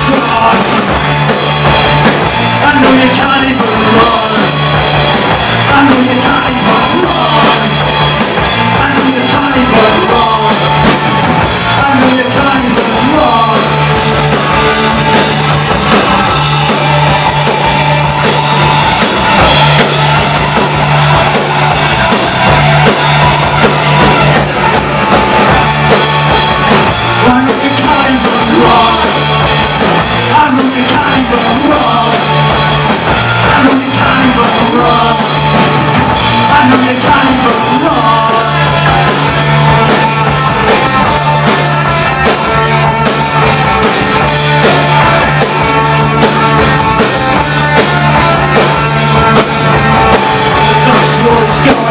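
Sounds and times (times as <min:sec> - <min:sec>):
person singing: 0:00.0 - 0:01.3, 0:02.6 - 0:11.0, 0:11.6 - 0:14.0, 0:27.0 - 0:40.4, 0:47.7 - 0:51.9
rock band playing loudly: 0:00.0 - 0:51.9.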